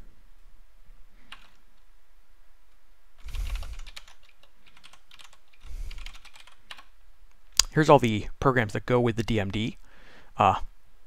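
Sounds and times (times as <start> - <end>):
typing on computer keyboard: 1.3 - 1.6, 3.2 - 6.9.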